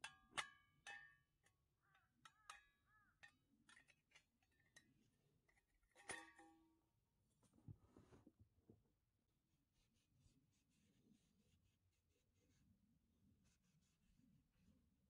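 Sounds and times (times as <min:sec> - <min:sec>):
steel stove parts clinking: 0:00.0 - 0:06.8.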